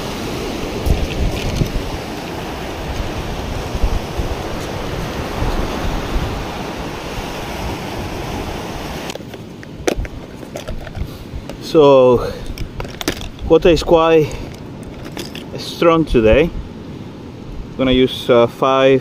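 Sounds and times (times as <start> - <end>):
wind on microphone: 0.0 - 18.1
surf breaking on shingle: 0.4 - 3.2.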